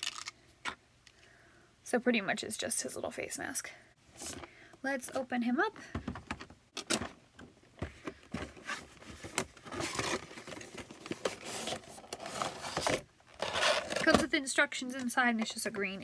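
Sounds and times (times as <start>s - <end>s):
cardboard box scraping and rustling: 9.7s - 14.2s.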